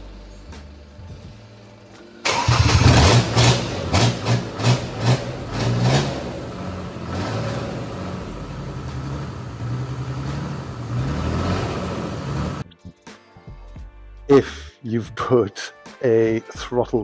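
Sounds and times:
diesel engine revving and idling: 0:02.3 - 0:12.6.

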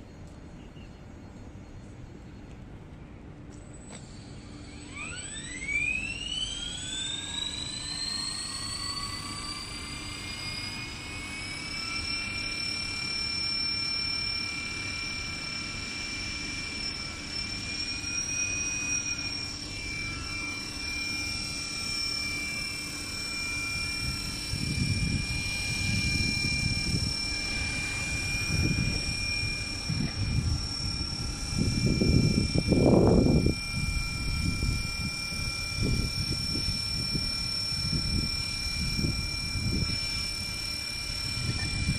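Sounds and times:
toy helicopter rotors whining: 0:03.5 - 0:41.9
wind gusts on microphone: 0:23.7 - 0:40.6, 0:41.2 - 0:41.9.

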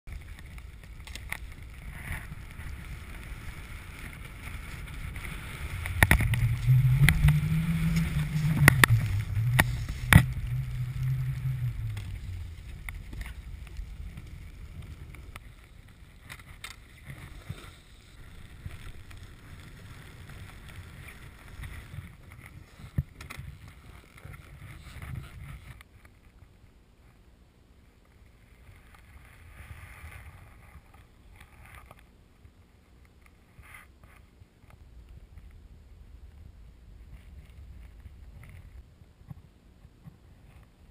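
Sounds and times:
snowboard sliding across snow: 0:00.1 - 0:25.7
wind buffeting microphone: 0:00.6 - 0:15.4.

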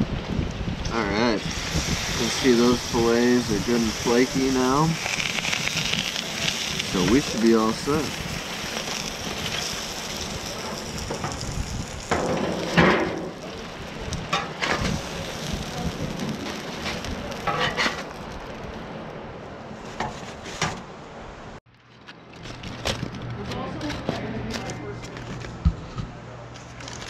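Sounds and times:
hot griddle hissing: 0:00.9 - 0:18.9
foil crinkling: 0:03.4 - 0:18.8, 0:21.8 - 0:25.6, 0:26.6 - 0:27.0.

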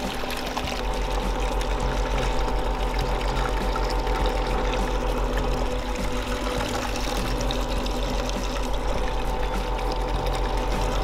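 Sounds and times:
background music: 0:00.0 - 0:11.0
pump running: 0:00.0 - 0:11.0
water pouring and splashing: 0:00.0 - 0:11.0.

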